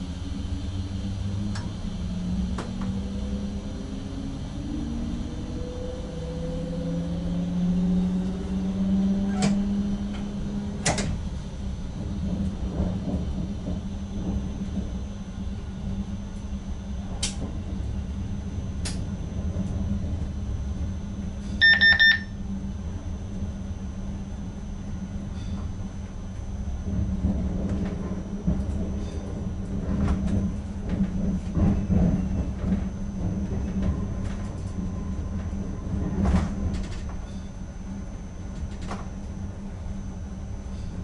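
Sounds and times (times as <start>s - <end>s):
train hum and rumble: 0.0s - 41.0s
rising motor whine: 0.2s - 10.8s
rapid electronic beeps: 21.6s - 22.3s.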